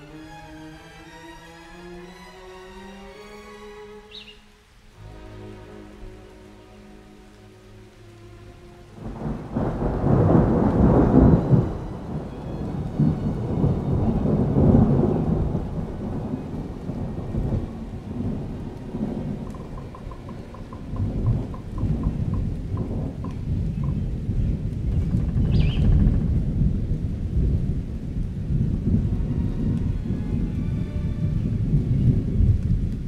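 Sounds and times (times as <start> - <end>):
rain: 0.0 - 33.0
rolling thunder: 8.9 - 33.0.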